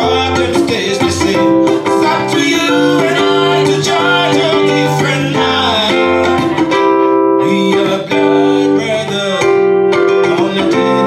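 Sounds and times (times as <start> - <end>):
ukulele: 0.0 - 8.5
acoustic bass: 0.0 - 11.0.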